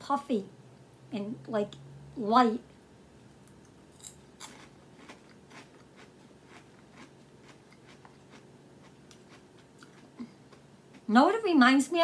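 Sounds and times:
person chewing crunchy snack: 3.9 - 11.1.

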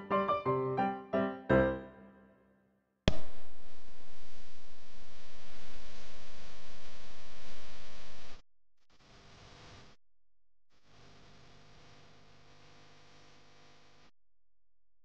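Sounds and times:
faint hum: 3.1 - 8.4.

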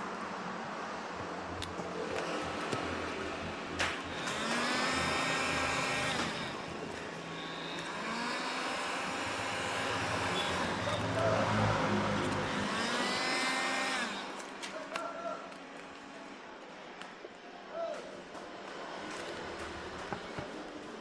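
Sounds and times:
heat gun fan whine: 3.8 - 11.2, 12.3 - 14.6.

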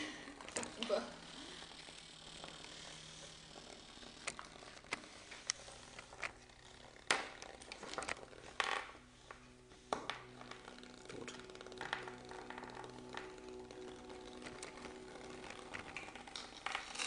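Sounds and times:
vibration motors humming: 0.0 - 17.0
small robots skittering on wood: 0.4 - 17.0.

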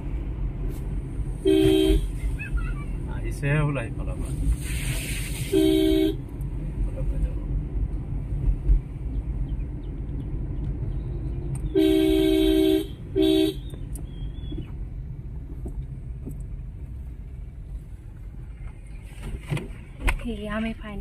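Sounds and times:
car driving rumble: 0.0 - 21.0
car horn blasts: 1.4 - 2.2, 5.5 - 6.2, 11.7 - 13.7.

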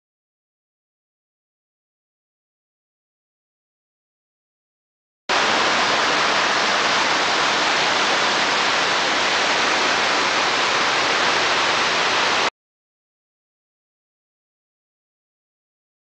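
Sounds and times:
water rushing over a ledge: 5.3 - 12.5.

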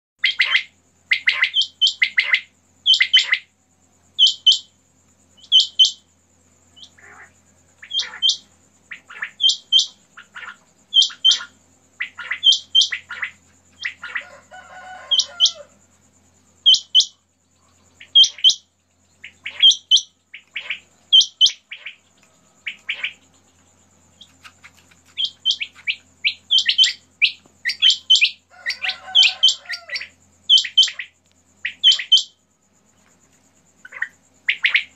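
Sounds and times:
quails calling: 0.2 - 3.5, 4.2 - 4.7, 5.4 - 6.1, 6.8 - 15.7, 16.6 - 32.4, 33.8 - 34.9.

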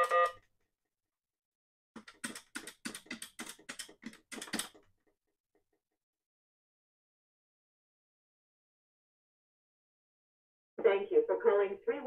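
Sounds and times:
keypad buttons clicking: 2.0 - 4.8.

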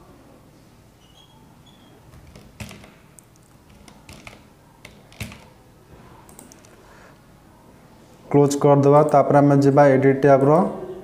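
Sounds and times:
computer input clicks: 2.1 - 5.6.

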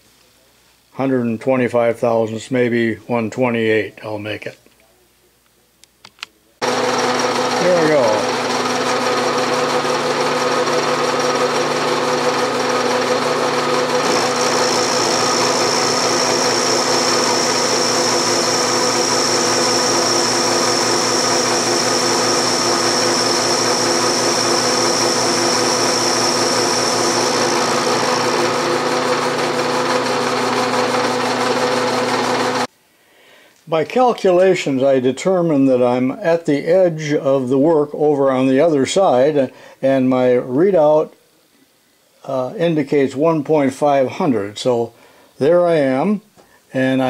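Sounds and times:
milling cutter high whine: 6.6 - 32.7
spindle hum: 13.2 - 30.9.

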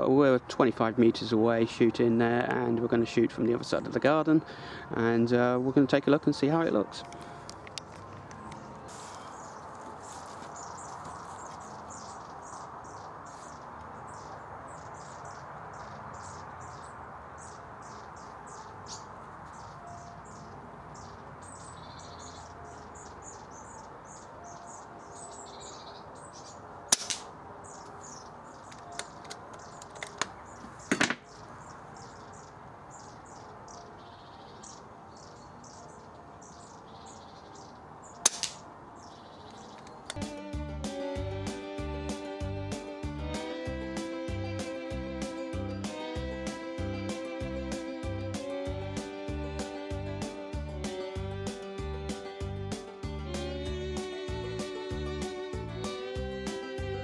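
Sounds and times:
birds chirping: 0.0 - 57.0
air rifle shots: 26.9 - 27.3, 38.2 - 38.6.

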